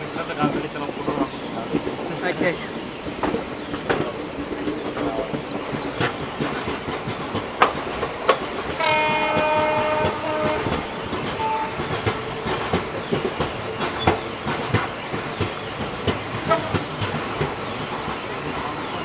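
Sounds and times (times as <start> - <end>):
train wheels clattering over rails: 0.0 - 19.0
train horn blowing: 8.8 - 11.9, 16.4 - 16.8.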